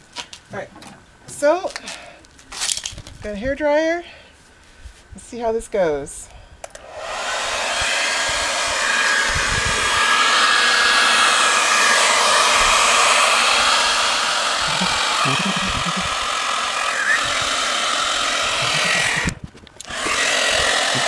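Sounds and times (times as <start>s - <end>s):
hair dryer blowing: 6.7s - 21.0s.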